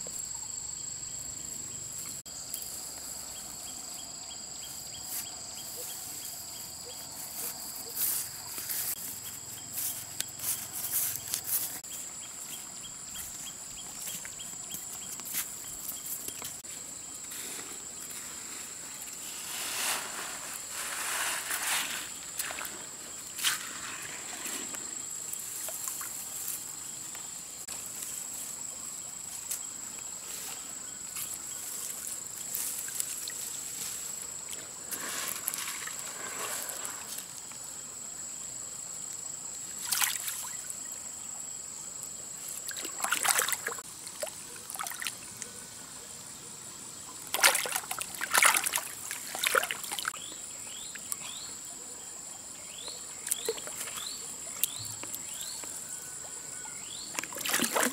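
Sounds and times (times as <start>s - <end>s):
gravel being scooped: 7.2s - 11.9s, 17.3s - 25.1s, 34.8s - 37.3s
hands splashing in water: 42.7s - 43.8s, 47.3s - 50.1s, 57.2s - 57.9s.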